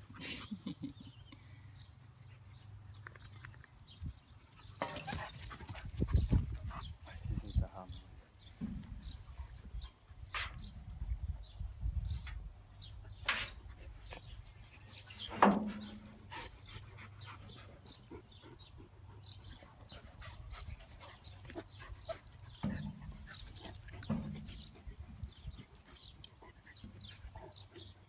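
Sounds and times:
dogs whining and yipping: 19.8 - 24.2.

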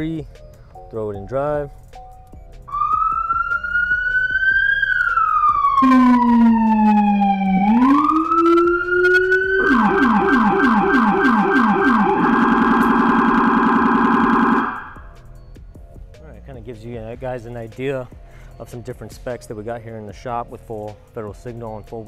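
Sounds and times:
police siren wailing: 2.7 - 15.1
siren fast yelp: 2.7 - 15.1.

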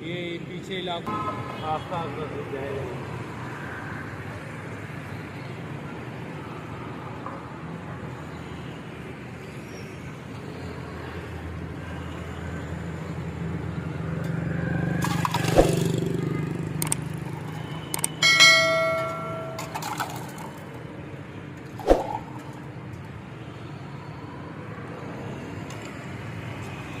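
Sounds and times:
city road traffic: 0.0 - 27.0
vehicle passing: 14.3 - 20.8, 21.8 - 22.8
short clear ringing tone: 18.2 - 19.9.

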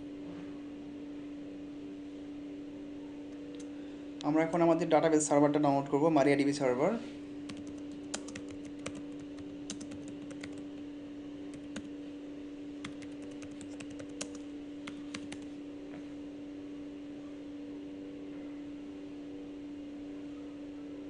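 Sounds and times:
steady low hum: 0.0 - 21.0
keyboard typing clicks: 7.5 - 10.8, 11.5 - 11.9, 12.8 - 15.5.

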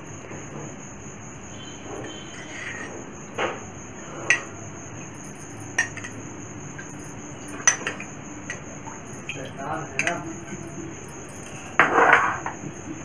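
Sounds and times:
spoon clinking against glass bowl: 4.3 - 4.6, 5.2 - 6.2, 6.8 - 8.6, 9.2 - 12.4.

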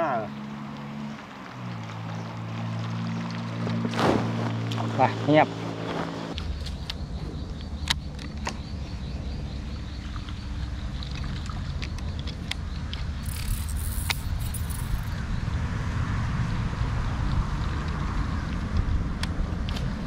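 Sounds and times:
boat engine rumbling: 0.0 - 15.2.

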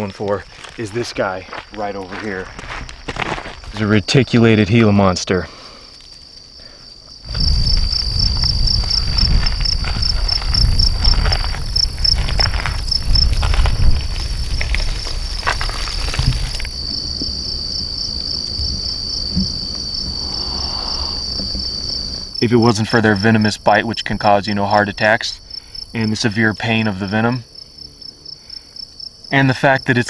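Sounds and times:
crickets chirping: 0.0 - 30.0
low rumbling and rustling: 7.3 - 22.4.

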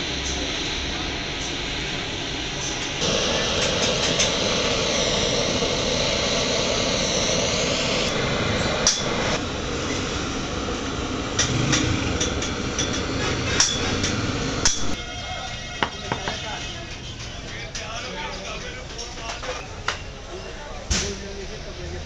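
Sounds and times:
blowtorch flame roaring: 0.0 - 15.0.

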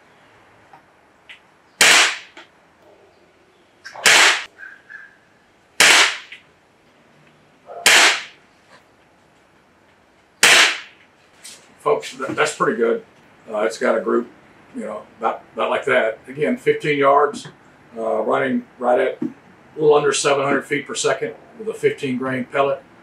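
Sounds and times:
air rifle shots cracking: 1.8 - 2.4, 3.9 - 4.5, 5.8 - 6.4, 7.8 - 8.4, 10.4 - 11.0.

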